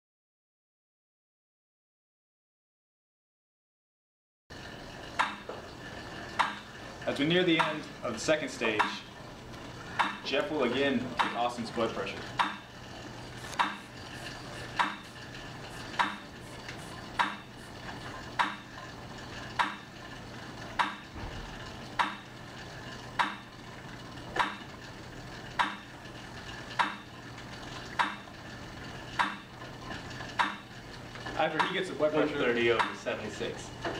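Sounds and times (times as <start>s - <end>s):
low steady hum: 4.7s - 33.9s
sharp regular clicks: 7.6s - 7.9s, 10.0s - 10.3s, 11.2s - 11.4s, 12.4s - 12.9s, 18.2s - 18.8s, 21.9s - 22.3s, 23.2s - 23.6s, 25.5s - 25.9s, 26.5s - 27.1s, 27.9s - 28.3s.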